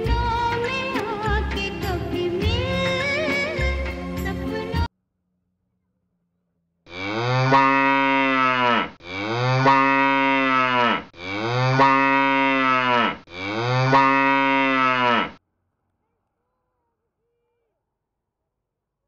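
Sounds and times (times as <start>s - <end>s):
cow mooing: 6.9s - 15.4s.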